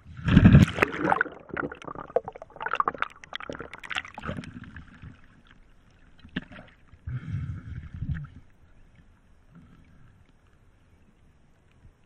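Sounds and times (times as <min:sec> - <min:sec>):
sea water splashing: 0:00.2 - 0:06.9.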